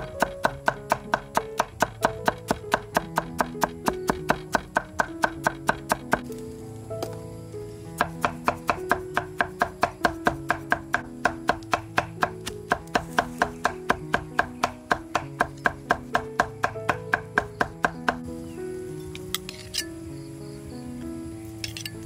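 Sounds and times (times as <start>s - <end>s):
knife chopping on cutting board: 0.2s - 6.3s, 8.0s - 18.0s.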